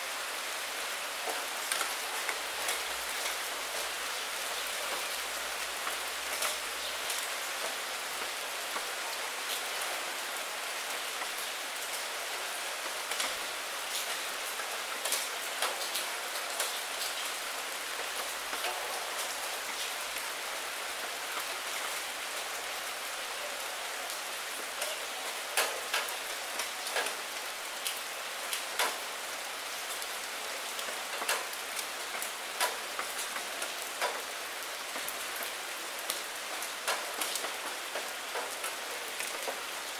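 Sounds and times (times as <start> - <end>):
rain falling on puddles and leaves: 0.0 - 39.9.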